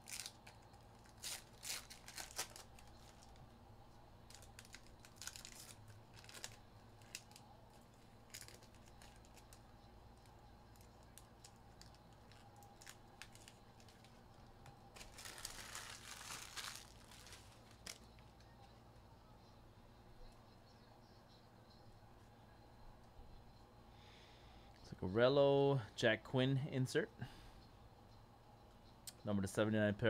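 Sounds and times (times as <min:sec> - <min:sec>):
plastic wrapping crinkling and tearing: 0:00.0 - 0:03.4, 0:04.3 - 0:09.6, 0:10.2 - 0:18.2.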